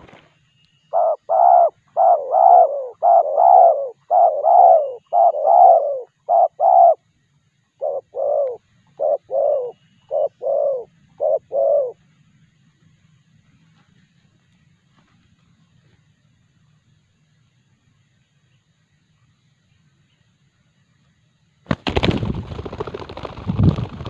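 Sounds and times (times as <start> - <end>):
dove cooing: 0.9 - 7.0, 7.8 - 12.0.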